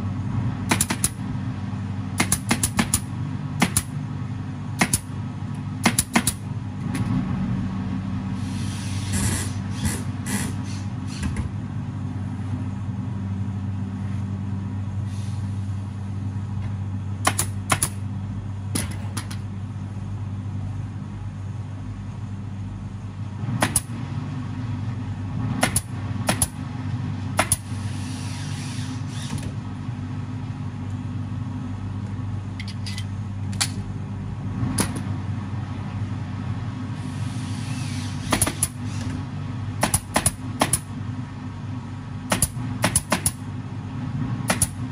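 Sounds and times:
low machine hum: 0.0 - 44.9
staple gun firing: 0.7 - 1.2, 2.2 - 3.0, 3.6 - 3.9, 4.8 - 5.1, 17.2 - 18.0, 39.8 - 40.8, 42.3 - 43.4, 44.5 - 44.8.

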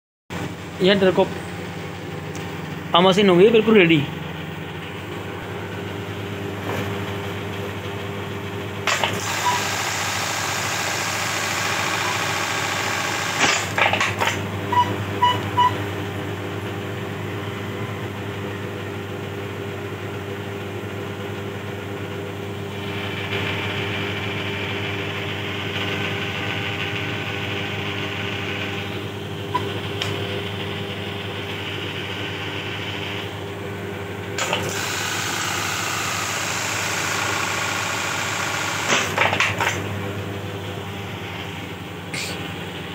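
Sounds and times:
buttonhole machine motor hum: 0.4 - 42.9
sharp machine clacks: 8.8 - 14.4, 36.0 - 39.8
rapid machine stitching: 8.8 - 14.8, 25.6 - 29.0, 34.4 - 39.9.

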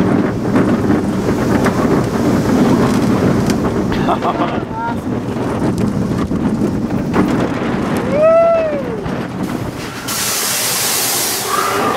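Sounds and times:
roller coaster rumble: 0.0 - 11.9
wind on microphone: 0.0 - 11.9
steady hiss: 9.4 - 11.9.

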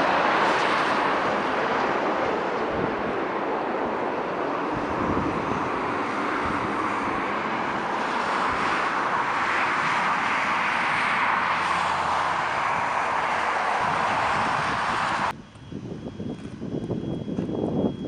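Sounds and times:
jet engines rushing: 0.0 - 18.0.

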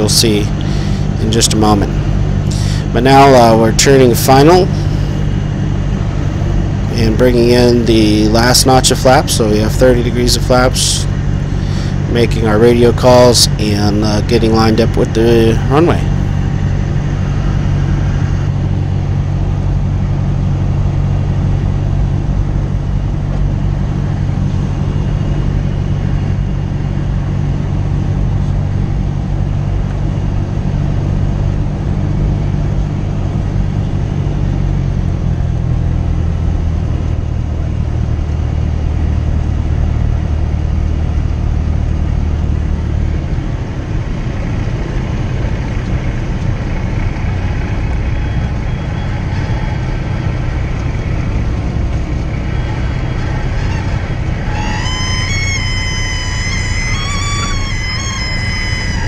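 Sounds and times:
aircraft engine and propeller droning: 0.0 - 59.0.

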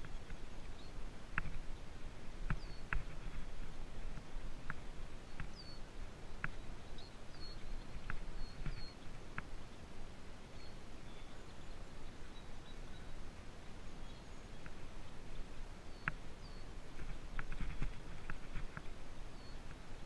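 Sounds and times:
wind hiss: 0.0 - 20.0
high bird chirps: 6.4 - 9.0.

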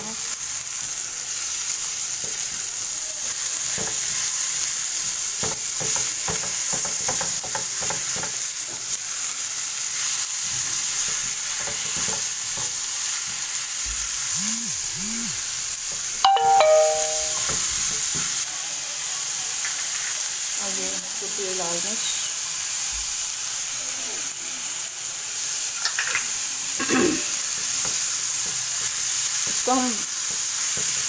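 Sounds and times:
meat and onions sizzling in a pan: 0.0 - 31.0
spatula scraping and tapping pan: 5.4 - 8.8, 11.0 - 12.8
ringing ding: 16.2 - 17.6.

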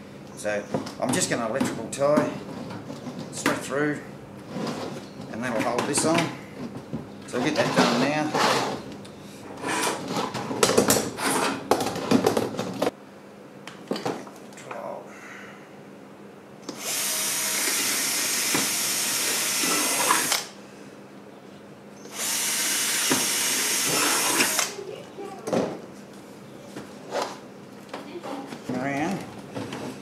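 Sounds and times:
cordless drill boring plastic: 16.7 - 20.5, 22.1 - 24.8.

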